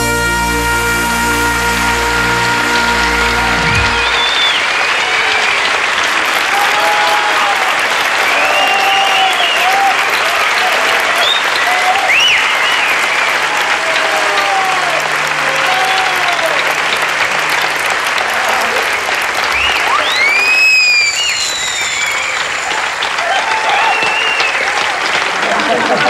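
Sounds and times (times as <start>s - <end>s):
cheering voices: 0.0s - 26.0s
high gliding tone: 1.2s - 4.4s
audience applauding: 1.2s - 26.0s.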